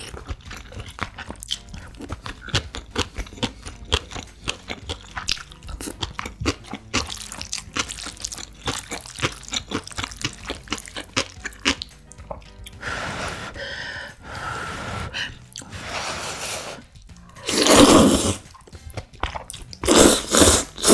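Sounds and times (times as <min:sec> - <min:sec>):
crunching of pickled radish: 0:00.0 - 0:12.8
slurping noodles: 0:12.7 - 0:18.6, 0:19.3 - 0:20.9.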